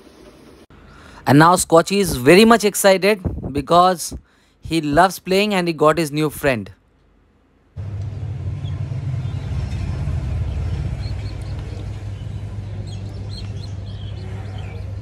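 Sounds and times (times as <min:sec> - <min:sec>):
steady low hum: 0:07.2 - 0:15.0.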